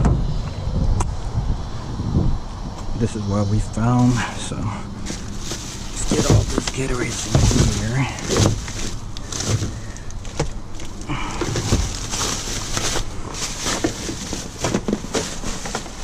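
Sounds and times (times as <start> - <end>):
low rumble: 0.0 - 10.0
plastic bag rustling: 4.0 - 16.0
plastic bottles knocking together: 5.1 - 16.0.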